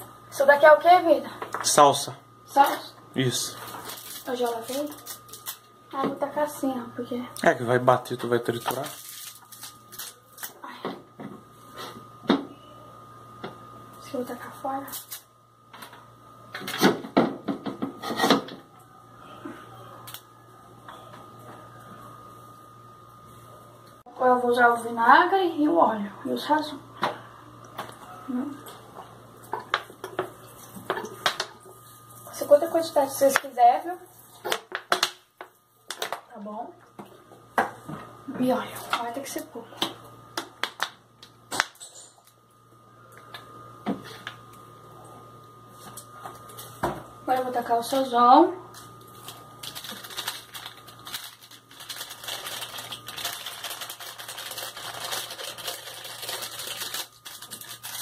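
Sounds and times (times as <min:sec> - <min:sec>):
faint steady hum: 0:00.0 - 0:58.0
parsley rustling in blender jar: 0:49.1 - 0:58.0.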